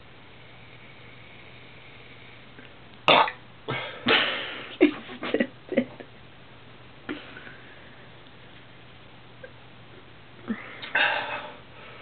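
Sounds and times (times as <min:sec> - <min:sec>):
man belching: 0:03.1 - 0:03.4.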